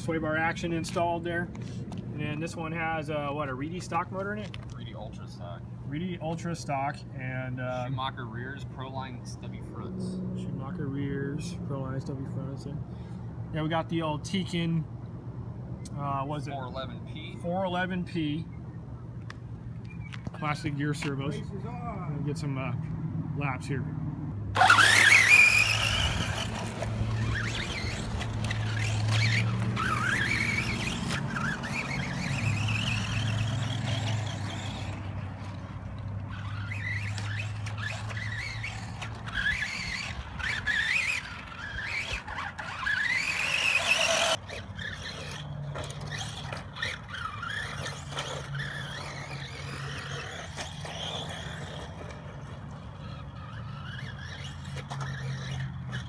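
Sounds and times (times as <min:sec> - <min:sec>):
rc car electric motors whining: 0:24.5 - 0:56.0.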